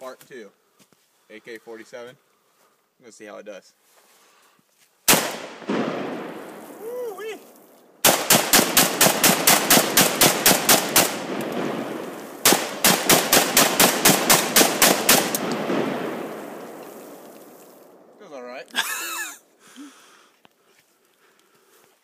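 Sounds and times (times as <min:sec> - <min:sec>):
rapid rifle fire with echo: 0:05.1 - 0:06.8, 0:08.0 - 0:18.0.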